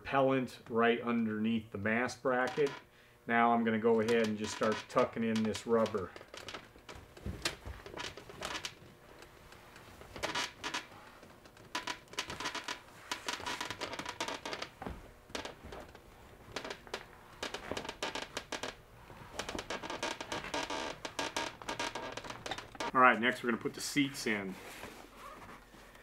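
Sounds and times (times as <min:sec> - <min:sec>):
rubber flap rustling and scratching: 0:03.9 - 0:23.7.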